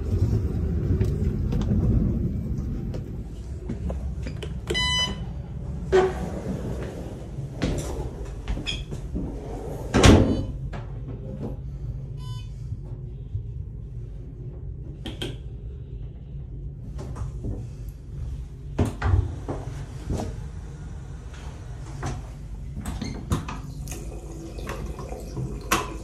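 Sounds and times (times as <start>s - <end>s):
train rumble: 0.0s - 10.0s.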